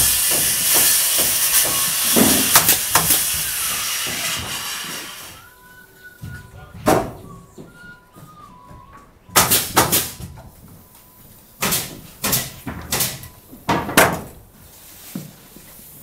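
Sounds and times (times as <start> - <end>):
knocks and thumps on wood: 0.2 - 5.0, 6.2 - 7.7.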